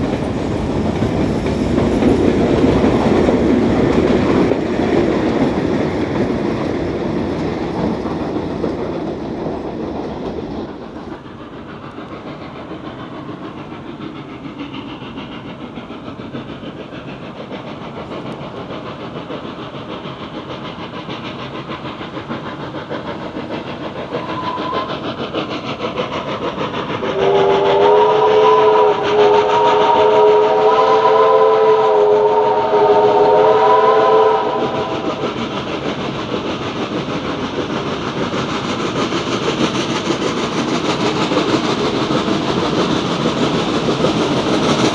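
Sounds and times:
train wheels clattering over rail joints: 0:00.0 - 0:31.6, 0:33.2 - 0:44.9
steam locomotive rumble: 0:00.0 - 0:44.9
steam whistle chord: 0:24.2 - 0:24.9, 0:27.2 - 0:35.0.

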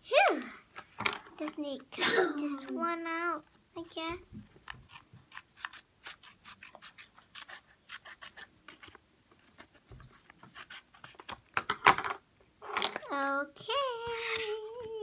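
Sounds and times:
scissors snipping paper: 0:04.8 - 0:09.0.

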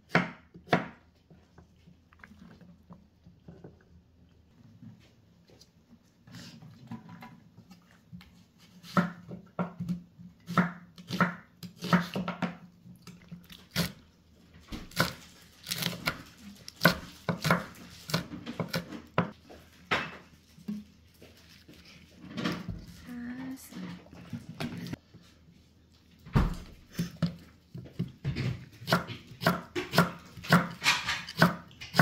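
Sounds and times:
knife chopping on wooden board: 0:00.1 - 0:01.0, 0:08.8 - 0:12.6, 0:16.8 - 0:19.4, 0:28.0 - 0:32.0.

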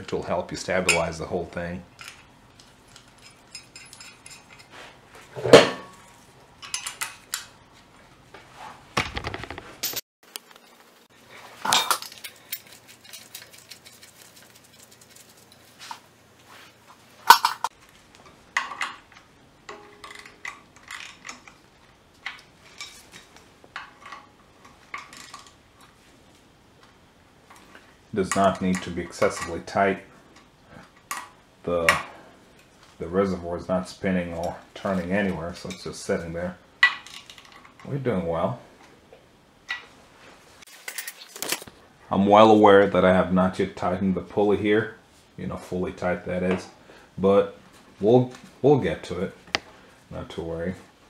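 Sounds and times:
metallic clinks and knocks: 0:02.9 - 0:04.7, 0:11.7 - 0:15.7, 0:19.7 - 0:21.6.

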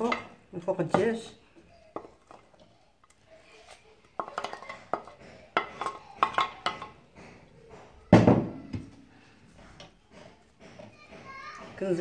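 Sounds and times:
plate and spoon tapping a pot: 0:04.2 - 0:07.0.

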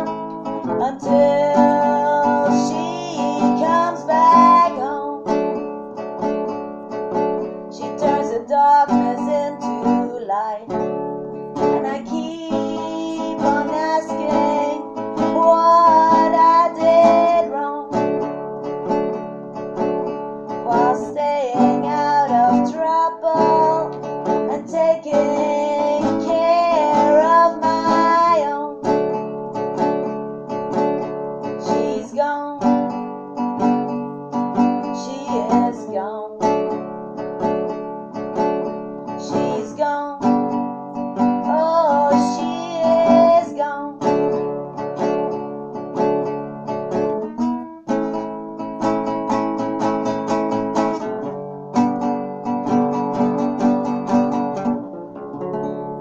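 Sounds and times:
woman singing: 0:00.0 - 0:05.6, 0:07.6 - 0:11.0, 0:11.6 - 0:18.3, 0:20.5 - 0:29.2, 0:31.4 - 0:33.8, 0:34.5 - 0:36.9, 0:39.1 - 0:44.5
classical guitar strumming chords: 0:00.0 - 0:56.0.

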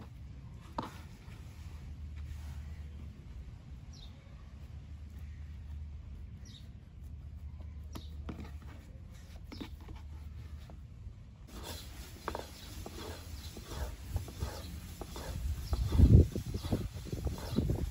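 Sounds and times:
hands patting and rubbing dough: 0:00.0 - 0:10.9, 0:11.5 - 0:17.9
low steady hum: 0:00.0 - 0:17.9
rolling pin rolling dough: 0:11.5 - 0:17.9.

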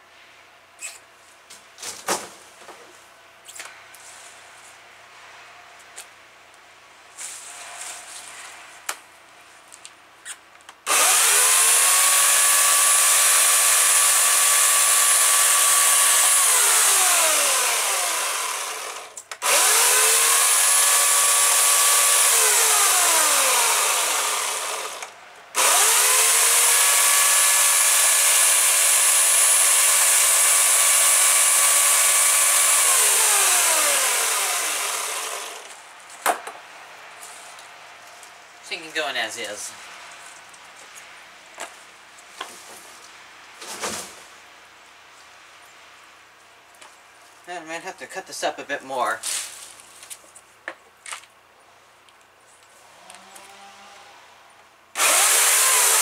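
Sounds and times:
electric chainsaw cutting branches: 0:10.8 - 0:35.8, 0:53.0 - 0:54.1, 0:55.0 - 0:56.0.

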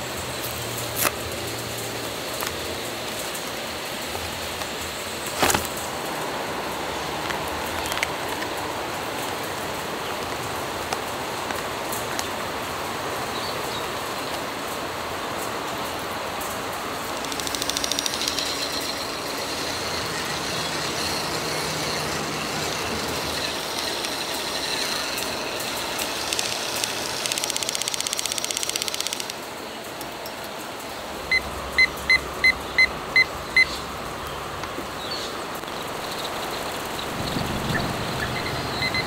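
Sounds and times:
outdoor background hum: 0:00.0 - 0:39.0
handheld mixer whirring: 0:17.3 - 0:28.7.

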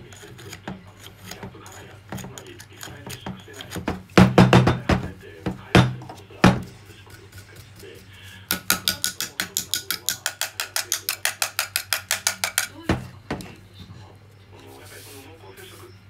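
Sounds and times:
metal tool scraping: 0:00.0 - 0:04.9
metal tool knocking: 0:00.7 - 0:06.8, 0:08.5 - 0:13.5.

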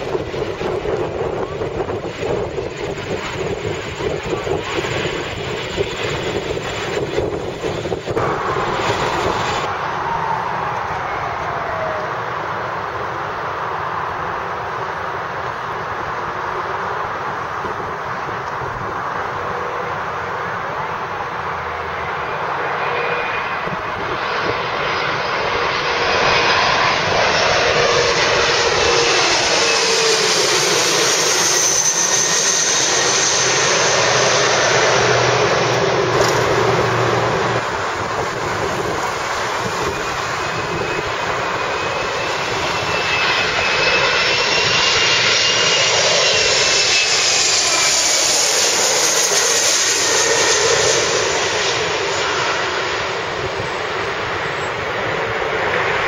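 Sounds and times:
jet engine whine: 0:00.0 - 0:56.0
jet roar passing overhead: 0:00.0 - 0:56.0.

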